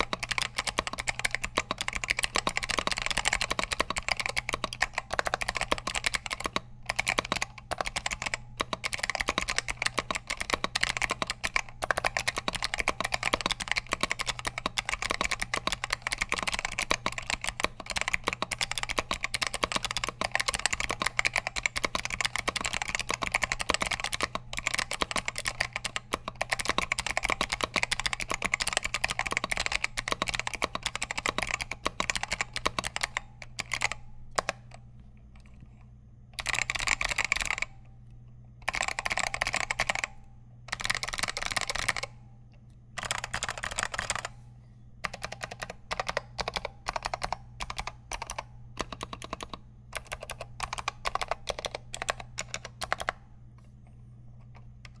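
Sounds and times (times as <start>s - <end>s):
keyboard keystroke clicks: 0.0s - 34.8s, 36.4s - 37.7s, 45.0s - 53.2s.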